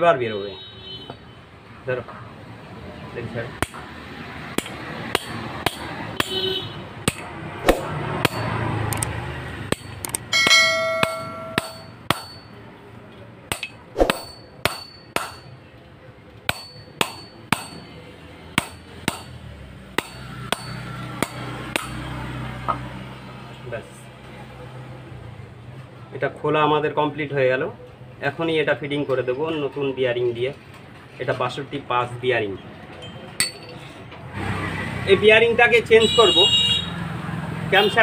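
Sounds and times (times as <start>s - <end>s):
hammer striking metal shaft: 4.6s - 6.4s, 7.0s - 8.6s, 9.7s - 12.5s, 13.5s - 15.5s, 16.5s - 17.9s, 18.6s - 19.4s, 20.0s - 22.0s
ringing metal clang: 10.3s - 12.6s, 13.5s - 15.5s, 33.0s - 33.9s.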